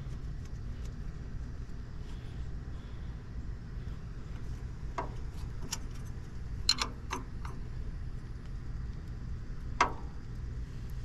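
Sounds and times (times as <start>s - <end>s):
steady low rumble: 0.0s - 11.0s
wrench clicking on metal bolts: 6.7s - 7.6s.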